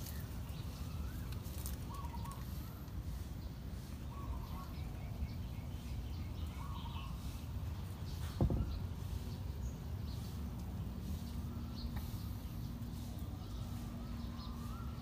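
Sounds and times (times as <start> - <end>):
faint bird chirps: 0.0 - 15.0
thump: 8.2 - 8.9.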